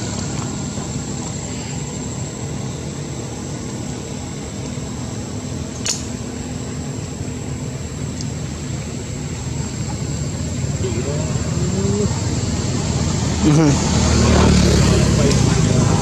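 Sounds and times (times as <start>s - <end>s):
low mechanical rumble: 0.0s - 16.0s
sharp click: 5.7s - 6.1s.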